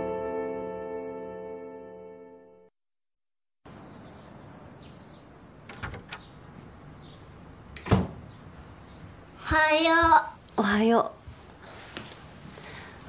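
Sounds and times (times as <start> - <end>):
piano music: 0.0 - 2.7.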